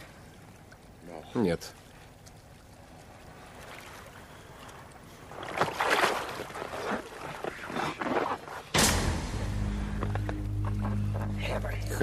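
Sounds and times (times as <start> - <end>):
water splashing and sloshing: 0.0 - 12.0
sudden loud hit: 8.8 - 11.2
music: 8.8 - 12.0.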